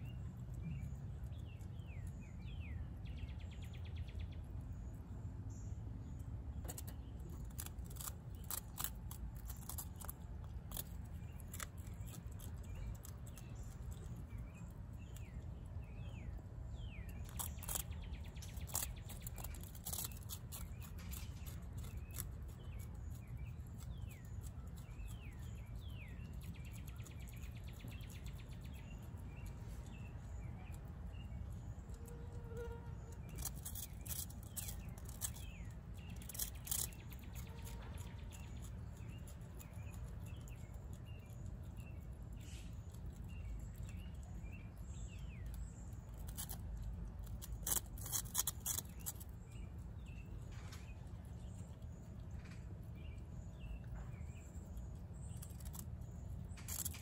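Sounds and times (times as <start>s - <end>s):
birds chirping: 0.0s - 57.0s
animal chewing crunchy food: 6.2s - 57.0s.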